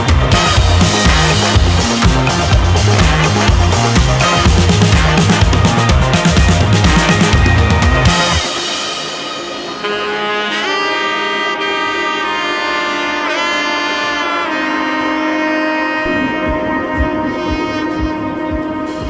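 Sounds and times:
steady low beat: 0.0 - 9.8, 15.8 - 19.0
melody with sliding bends: 0.0 - 19.0.

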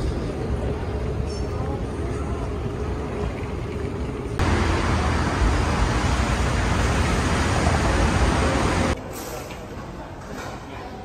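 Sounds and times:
indoor background hum: 0.0 - 9.0
road traffic noise: 3.0 - 9.3.

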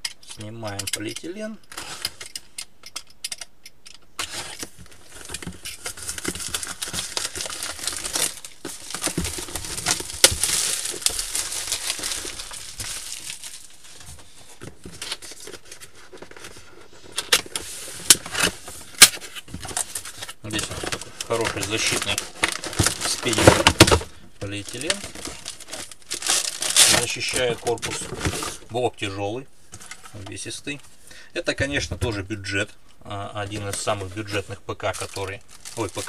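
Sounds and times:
plastic film crinkling: 4.2 - 29.2, 33.4 - 36.0
plastic film snapping: 21.2 - 28.0.

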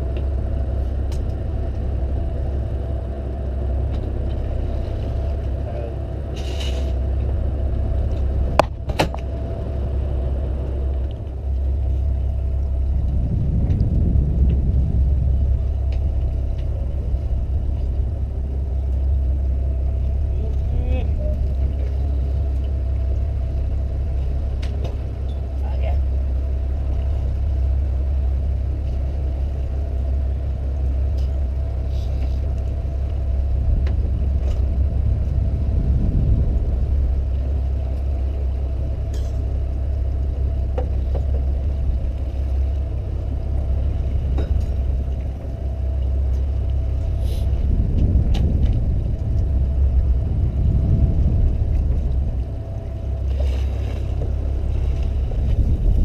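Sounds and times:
boat engine rumbling: 0.0 - 56.0.

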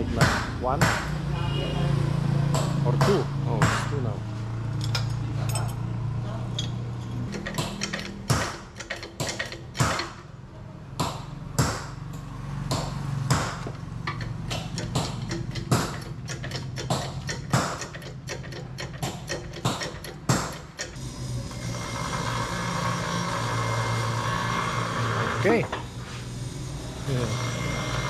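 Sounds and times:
hydraulic press clanking: 4.8 - 10.4, 11.0 - 26.0.

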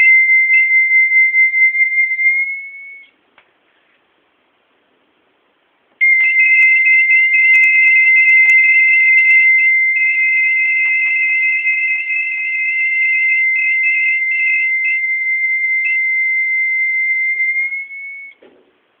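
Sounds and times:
high electronic alarm tone: 0.0 - 3.1, 6.0 - 18.4
warbling higher tone: 6.0 - 18.3.

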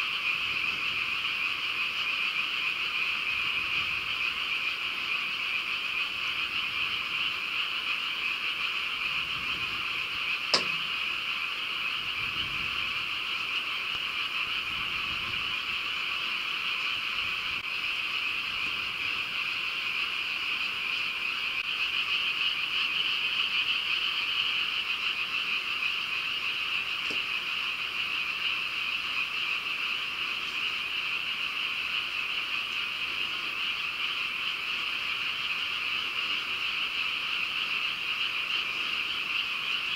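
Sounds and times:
frogs calling: 0.0 - 39.9
sharp click: 10.5 - 10.9.

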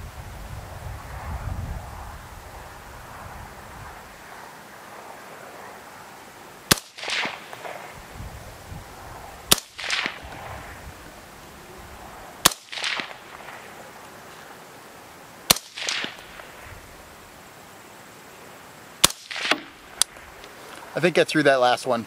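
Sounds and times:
rifle shots: 6.7 - 8.0, 9.5 - 10.7, 12.4 - 13.8, 15.5 - 16.6, 19.0 - 20.2.

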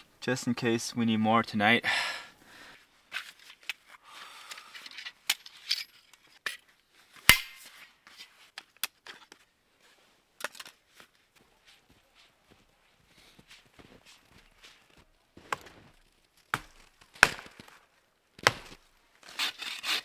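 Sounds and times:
camping gear clicks and knocks: 3.1 - 6.8, 10.4 - 11.2.

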